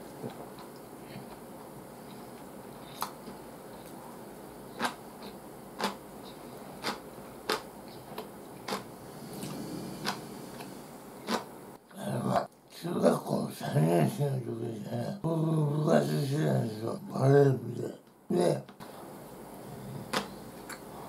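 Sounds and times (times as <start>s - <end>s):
low hiss: 0.0s - 21.0s
person chewing noodles: 0.1s - 11.5s.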